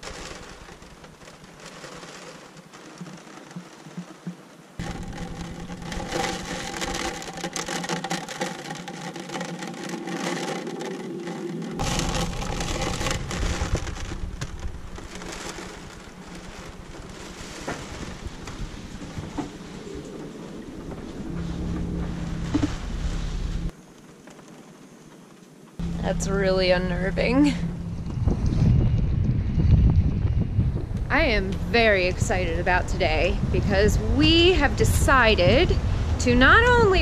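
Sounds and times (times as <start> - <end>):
torrential rain: 0.0 - 29.8, 30.8 - 37.0
storm wind buffeting: 4.8 - 7.7, 10.7 - 23.7, 25.8 - 37.0.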